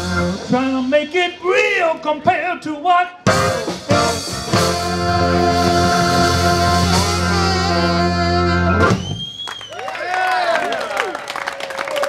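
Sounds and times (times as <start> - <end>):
soul-jazz band playing: 0.0 - 1.8, 3.2 - 9.2
saxophone bending notes: 3.3 - 9.2.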